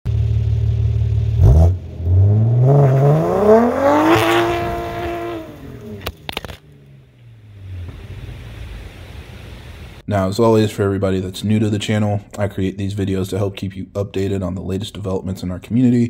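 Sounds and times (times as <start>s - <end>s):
car engine idling and revving: 0.1s - 10.0s
exhaust pops: 3.5s - 9.4s.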